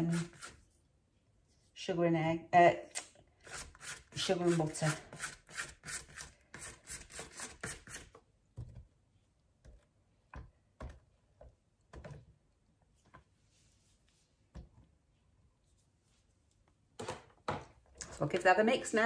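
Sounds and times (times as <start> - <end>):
spatula scraping plastic bowl: 0.0 - 0.6, 3.4 - 8.2.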